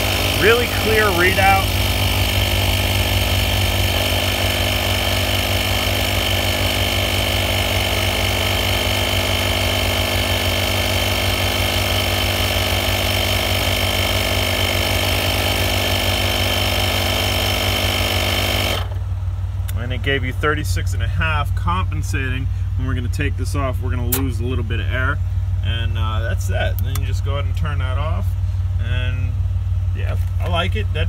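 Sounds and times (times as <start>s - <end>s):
tire inflator compressor buzzing: 0.0s - 19.1s.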